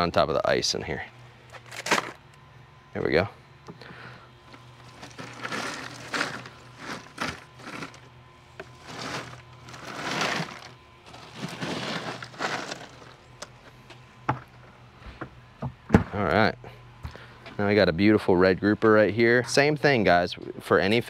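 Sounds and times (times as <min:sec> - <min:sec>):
crushed ice crunching: 0:01.6 - 0:02.2, 0:04.5 - 0:13.2.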